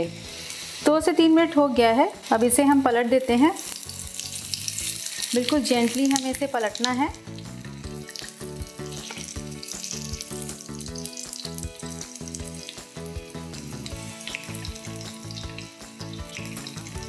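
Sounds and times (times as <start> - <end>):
hot oil sizzling: 0.0 - 17.0
background music with beat: 7.2 - 17.0.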